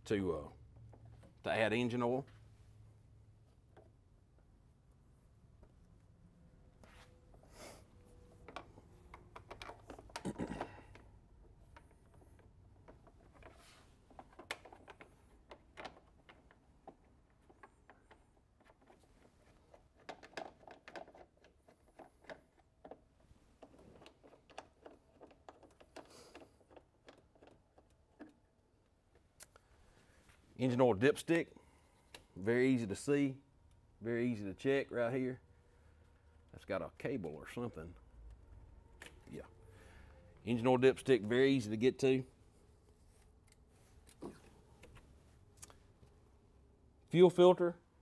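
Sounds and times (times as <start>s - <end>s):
faint clicks and rattles: 8.4s - 29.8s.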